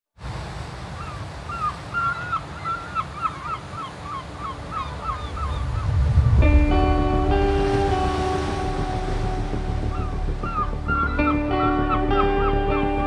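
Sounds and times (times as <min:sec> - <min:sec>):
surf rumble: 0:00.2 - 0:13.0
gull calling: 0:01.0 - 0:06.0, 0:09.1 - 0:13.0.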